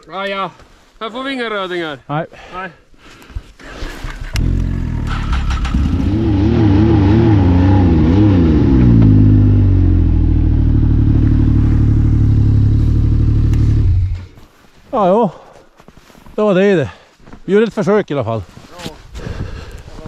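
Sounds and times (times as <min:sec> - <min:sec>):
snowmobile engine revving: 0:04.4 - 0:14.4.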